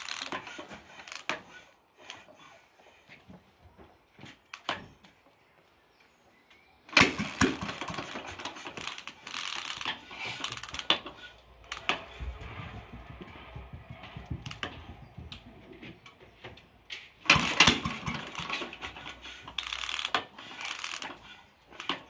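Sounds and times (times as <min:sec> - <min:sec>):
engine kick start: 0:07.0 - 0:12.6, 0:17.2 - 0:21.2.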